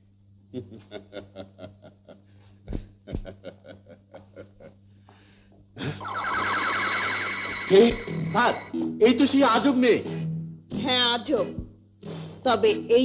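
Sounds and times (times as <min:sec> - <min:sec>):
man laughing: 0:00.5 - 0:02.3, 0:03.0 - 0:04.8.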